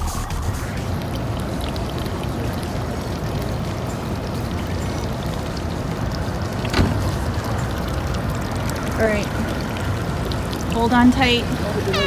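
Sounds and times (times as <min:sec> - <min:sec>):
boat engine idling: 0:10.8 - 0:12.0.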